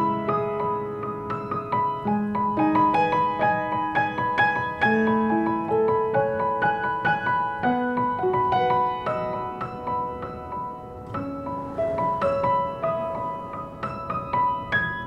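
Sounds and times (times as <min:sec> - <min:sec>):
piano music: 0:00.0 - 0:15.0.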